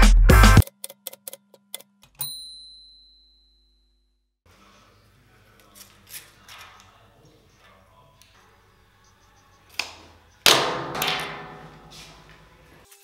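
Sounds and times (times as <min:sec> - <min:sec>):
typewriter bell ding: 0:02.2 - 0:03.7.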